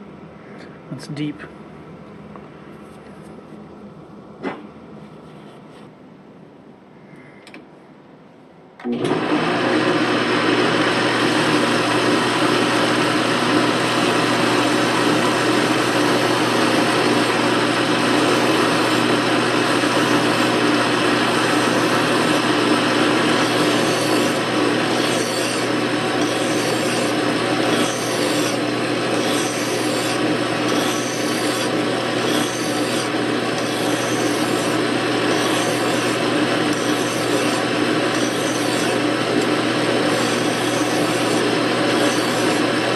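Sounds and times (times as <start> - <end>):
metal lathe running: 10.6 - 42.9
file rubbing on spinning metal: 21.3 - 42.6.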